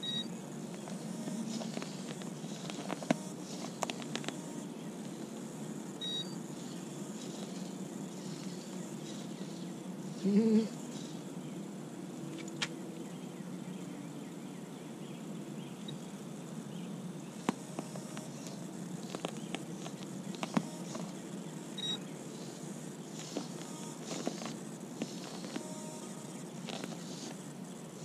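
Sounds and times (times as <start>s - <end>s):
outdoor background noise: 0.0s - 28.0s.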